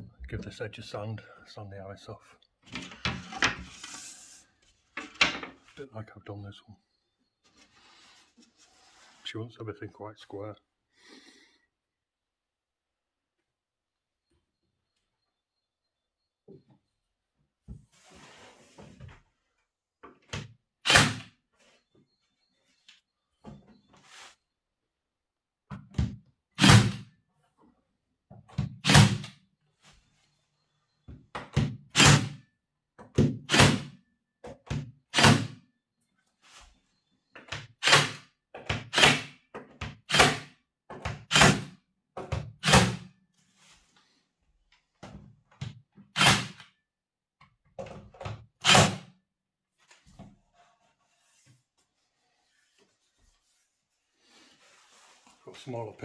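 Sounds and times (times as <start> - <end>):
pin nailer firing: 20.8 - 21.3, 26.6 - 27.0, 28.8 - 29.4, 31.9 - 32.4, 33.4 - 34.0, 35.1 - 35.6, 37.8 - 38.2, 38.8 - 39.4, 40.1 - 40.5, 41.3 - 41.8, 42.6 - 43.0, 46.2 - 46.6, 48.6 - 49.1.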